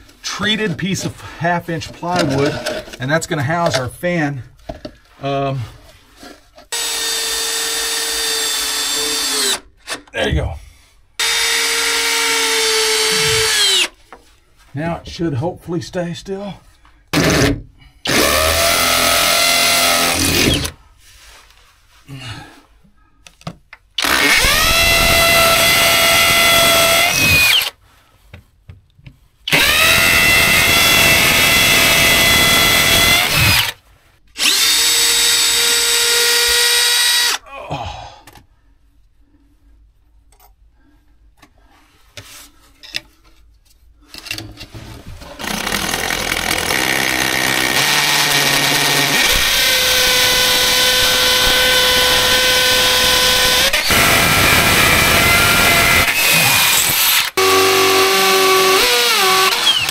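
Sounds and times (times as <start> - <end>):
drill bit drilling into concrete: 6.7 - 9.6, 11.2 - 14.0, 18.1 - 20.8, 24.0 - 27.8, 29.5 - 33.8, 34.4 - 37.4, 45.4 - 59.9
cordless drill whining: 6.7 - 10.0, 11.2 - 14.0, 17.2 - 20.8, 24.0 - 27.8, 29.5 - 33.8, 34.4 - 37.4, 45.4 - 59.9.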